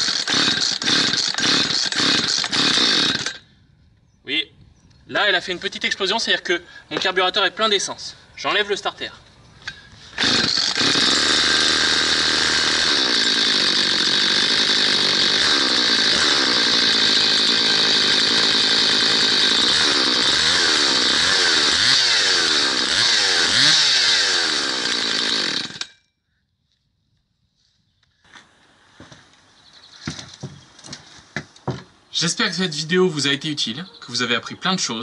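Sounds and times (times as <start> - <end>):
chainsaw revving: 0.0 - 3.4, 10.1 - 25.9.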